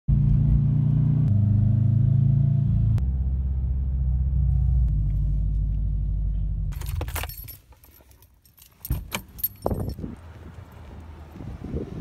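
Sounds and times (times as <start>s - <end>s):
keys jangling on key ring: 6.8s - 10.0s.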